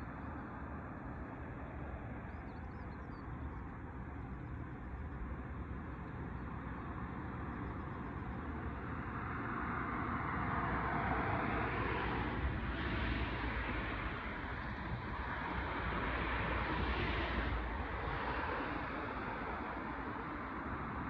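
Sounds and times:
distant motor rumble and hiss: 0.0s - 21.0s.

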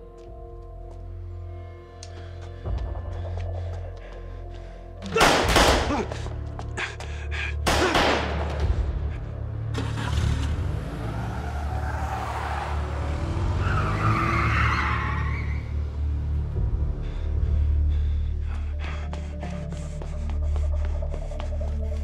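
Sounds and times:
film music score: 0.0s - 22.0s
car tyres squealing: 9.8s - 15.8s.

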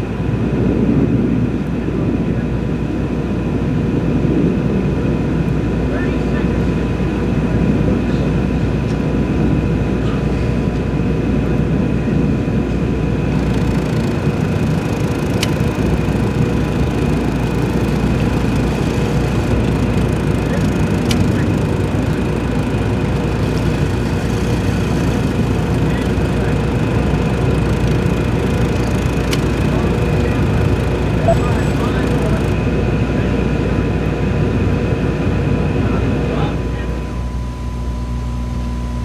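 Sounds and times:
broadcast rumble and hiss: 0.0s - 37.9s
faint high steady tone: 31.2s - 32.4s.

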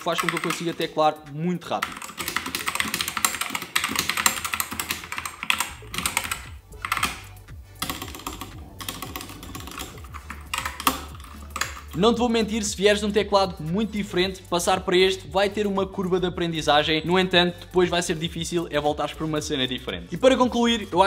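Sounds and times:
fast keyboard typing: 0.0s - 13.1s.

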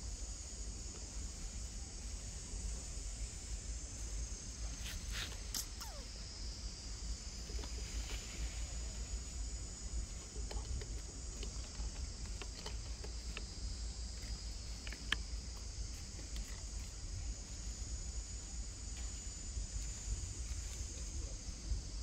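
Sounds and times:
high-pitched insect drone: 0.1s - 10.4s.

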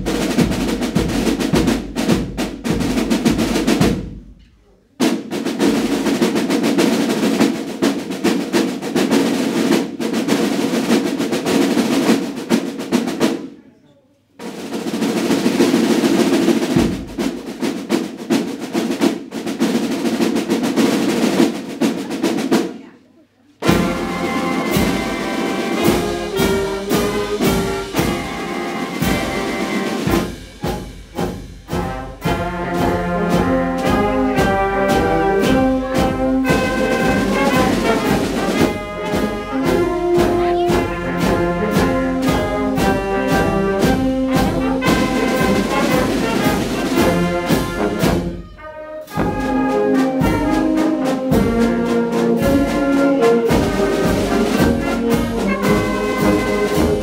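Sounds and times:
fanfare brass band playing: 0.0s - 4.2s, 5.0s - 13.3s, 23.6s - 57.0s.

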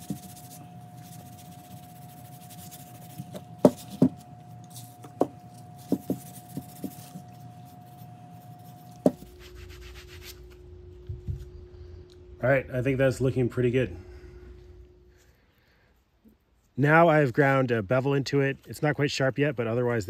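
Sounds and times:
rag rubbing over axe head: 0.0s - 10.6s
faint steady hum: 0.0s - 20.0s.

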